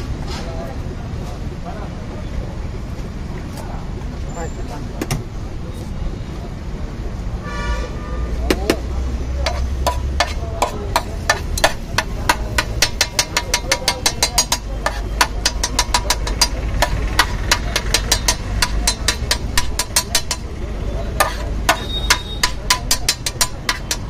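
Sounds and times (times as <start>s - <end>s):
low traffic rumble: 0.0s - 24.0s
metal ladle clinking on griddle: 9.4s - 24.0s.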